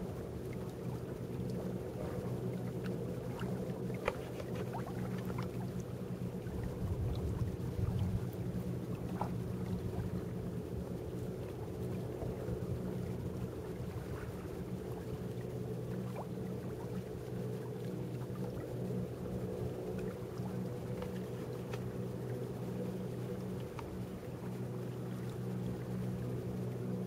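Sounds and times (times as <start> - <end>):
boat engine running: 0.0 - 27.0
low rumble: 6.4 - 10.8.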